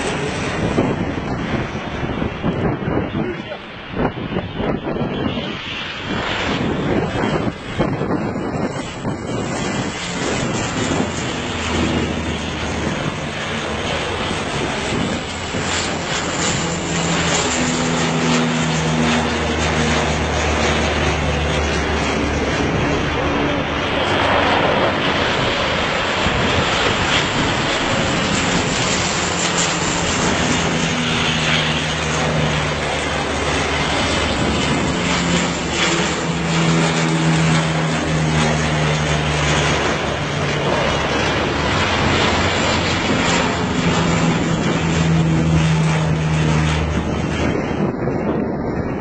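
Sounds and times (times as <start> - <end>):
propeller airplane flying past: 0.0 - 49.0.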